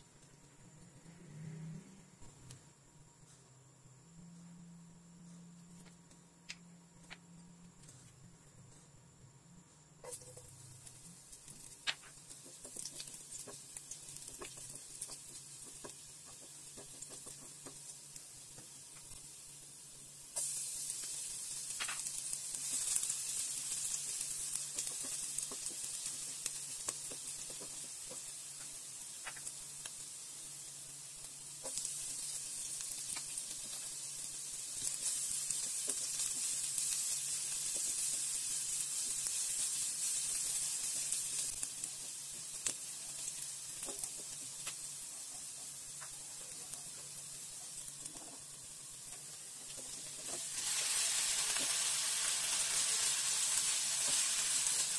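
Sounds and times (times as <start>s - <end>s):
spatula scraping and tapping wok: 10.0s - 10.9s, 11.5s - 19.2s, 21.7s - 29.6s, 31.6s - 34.0s, 34.8s - 39.4s, 40.4s - 54.9s
food sizzling in hot oil: 10.0s - 54.9s.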